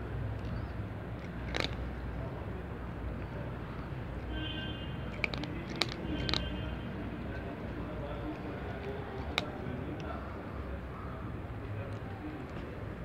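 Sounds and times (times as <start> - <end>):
cat chewing dry kibble: 0.4 - 4.4, 5.0 - 10.5.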